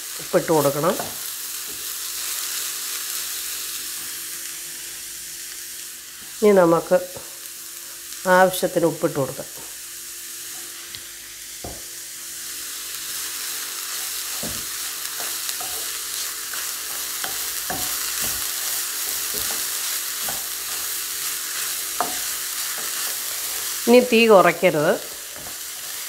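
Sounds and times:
vegetables sizzling in a pan: 0:00.0 - 0:26.0
wooden spatula stirring vegetables: 0:13.8 - 0:26.0.

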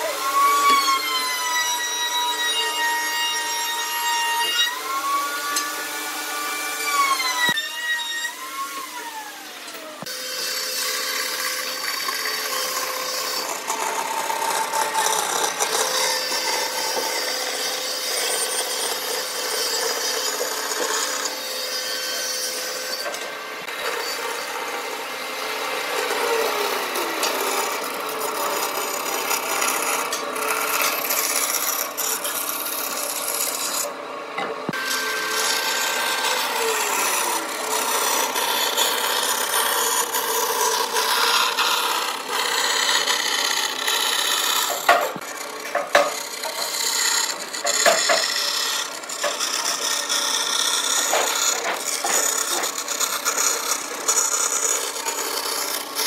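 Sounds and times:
band saw cutting wood: 0:00.0 - 0:56.0.

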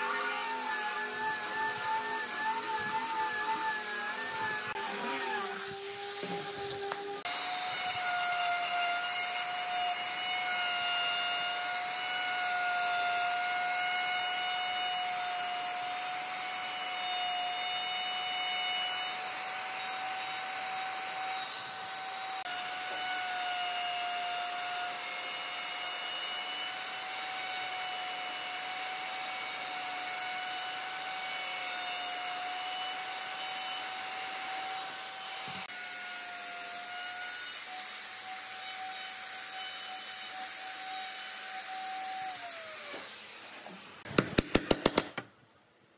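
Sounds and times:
angle grinder sanding: 0:00.0 - 0:24.2
router whining: 0:00.0 - 0:45.2.

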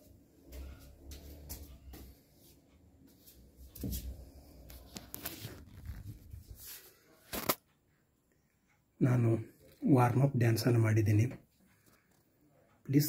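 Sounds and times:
knocks and shuffling: 0:00.0 - 0:07.9
phone being handled: 0:07.3 - 0:07.6.

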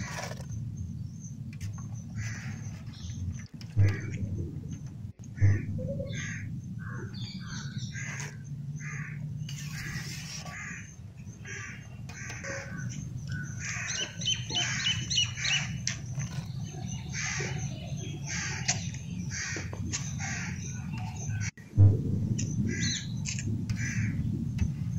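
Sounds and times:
low background hum: 0:00.0 - 0:24.9
crows cawing: 0:02.2 - 0:02.7, 0:05.4 - 0:15.7, 0:17.1 - 0:17.6, 0:23.7 - 0:24.2
high bird chirps: 0:05.4 - 0:21.5.

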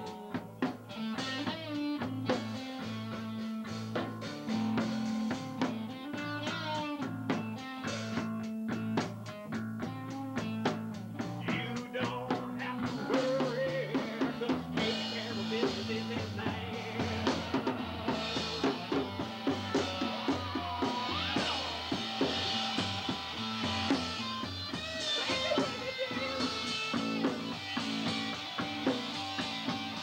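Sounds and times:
bass and electric guitar: 0:00.0 - 0:30.0
drum kit: 0:00.0 - 0:30.0
person singing into a microphone: 0:11.4 - 0:19.1
cymbals: 0:16.8 - 0:30.0.

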